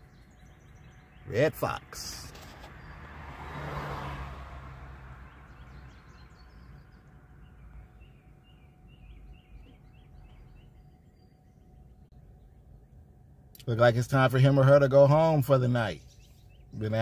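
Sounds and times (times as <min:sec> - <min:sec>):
small birds chirping: 0:00.0 - 0:03.1, 0:04.8 - 0:17.0
low steady hum: 0:06.6 - 0:16.9.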